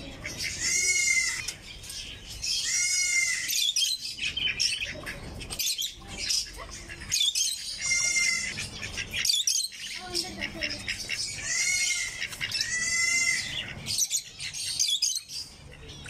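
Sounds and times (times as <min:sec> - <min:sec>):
harsh drawn-out bird call: 0:00.0 - 0:01.6, 0:02.4 - 0:16.0
caged birds chirping: 0:00.0 - 0:16.0.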